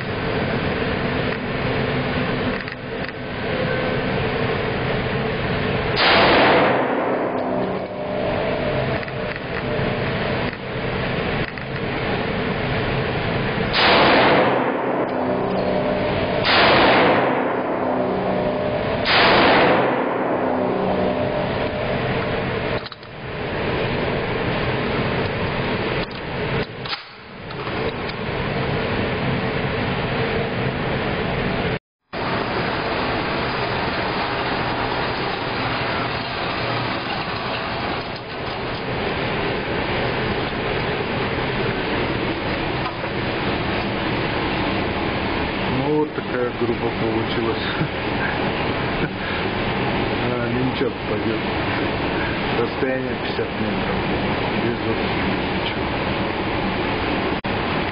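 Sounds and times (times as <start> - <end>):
motorized target carrier running: 0.0 - 57.9
ventilation hum: 0.0 - 57.9
rifle shots with reverberation: 6.0 - 7.3, 13.8 - 15.3, 16.4 - 18.0, 19.0 - 20.7.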